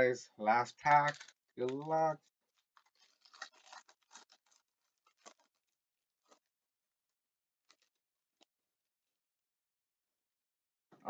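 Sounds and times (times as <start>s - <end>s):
cards clicking: 0.9s - 2.0s
foil pack crinkling: 0.9s - 5.7s.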